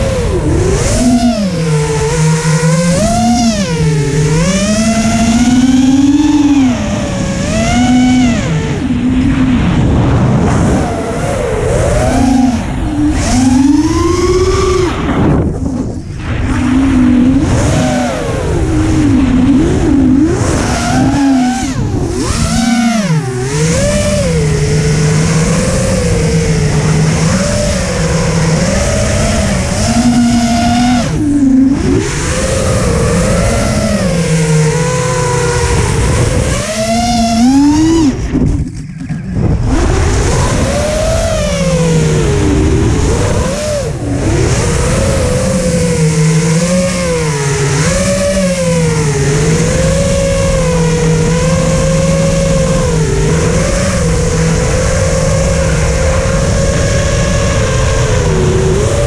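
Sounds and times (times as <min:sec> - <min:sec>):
quadcopter motors whining: 0:00.0 - 0:59.0
air rushing: 0:37.5 - 0:43.4.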